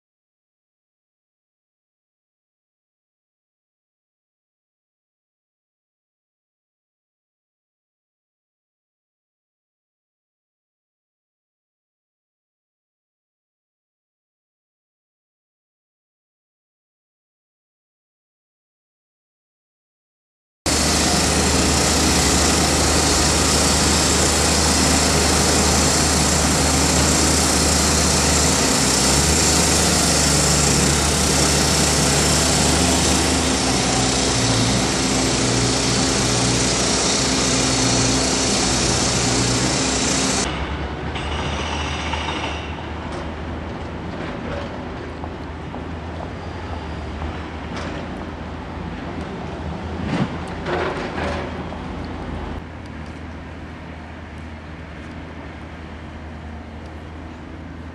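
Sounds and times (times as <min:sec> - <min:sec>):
traffic noise: 0:20.7 - 0:57.9.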